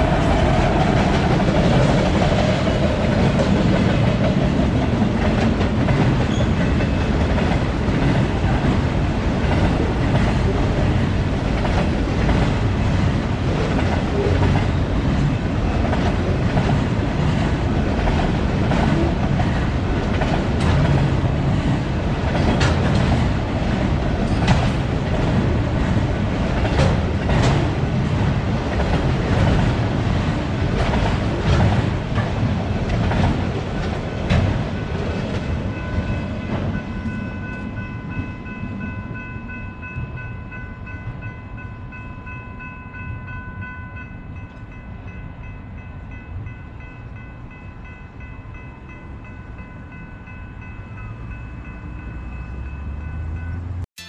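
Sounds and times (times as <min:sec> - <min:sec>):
wheels clacking over rail joints: 0:00.0 - 0:36.8
steel wheels rumbling on rail: 0:00.0 - 0:54.0.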